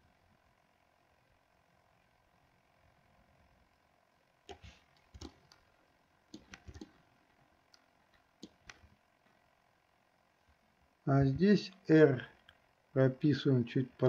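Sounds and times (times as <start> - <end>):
quiet hiss: 0.0 - 14.0
computer mouse and keyboard clicks: 4.5 - 5.7, 6.3 - 7.0, 7.7 - 9.0.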